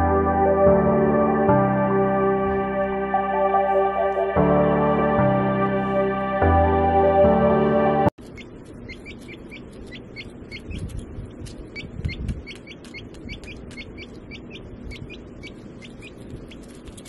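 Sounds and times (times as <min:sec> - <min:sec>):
baby chick peeping: 0:08.2 - 0:17.0.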